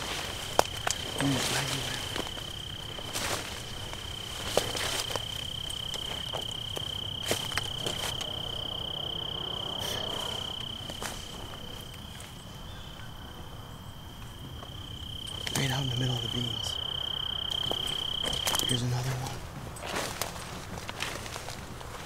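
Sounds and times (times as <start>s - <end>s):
dry stalks snapping: 0.0s - 8.4s, 19.8s - 22.0s
footsteps rustling through plants: 0.0s - 8.9s, 9.8s - 12.4s, 14.4s - 16.8s, 17.5s - 22.0s
insect trilling: 0.0s - 19.5s.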